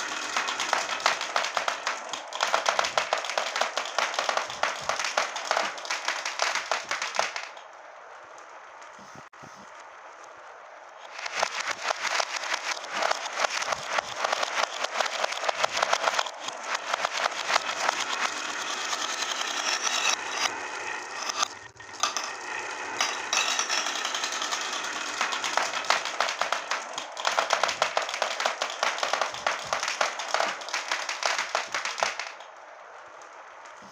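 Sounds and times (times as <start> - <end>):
glass marbles clattering on wood: 22.0 - 22.4, 23.0 - 24.6.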